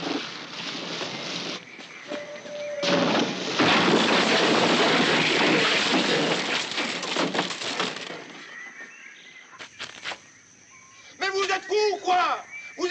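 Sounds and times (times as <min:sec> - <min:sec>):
fire roaring and crackling: 0:00.0 - 0:01.8, 0:02.8 - 0:08.4.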